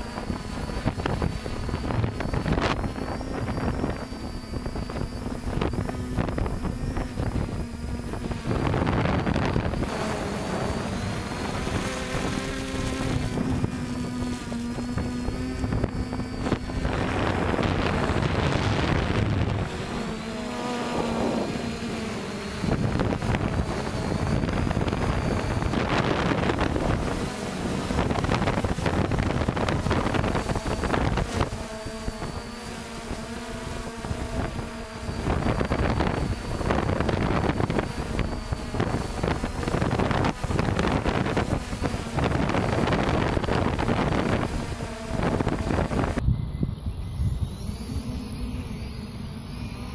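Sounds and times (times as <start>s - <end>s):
drone motors humming: 0.0s - 49.9s
wind buffeting microphone: 0.0s - 49.9s.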